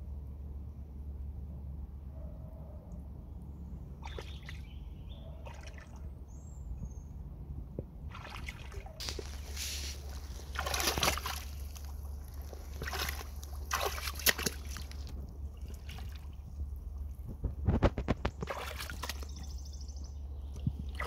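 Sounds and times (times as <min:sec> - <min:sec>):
boots wading through water: 0:04.0 - 0:04.7, 0:05.4 - 0:06.1, 0:08.1 - 0:17.2, 0:18.0 - 0:19.6.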